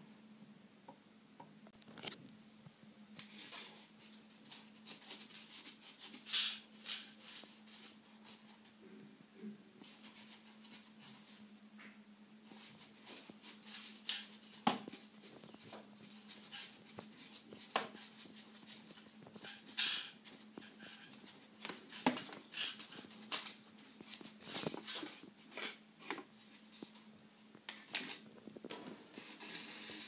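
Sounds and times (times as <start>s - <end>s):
paper fan flapping and clicking: 12.5s - 27.1s.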